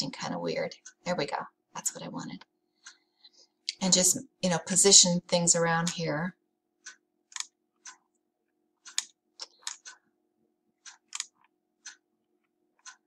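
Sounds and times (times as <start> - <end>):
faint steady hum: 0.0 - 13.0
computer mouse clicking: 6.8 - 8.1, 8.8 - 10.0, 10.8 - 12.0.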